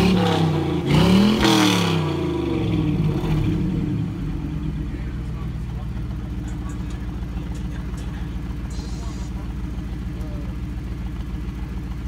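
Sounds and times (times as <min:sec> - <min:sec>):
car engine revving and idling: 0:00.0 - 0:12.0.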